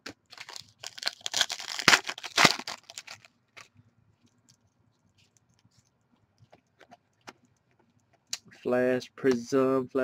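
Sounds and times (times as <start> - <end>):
foil wrapper tearing and crinkling: 0.3 - 3.3.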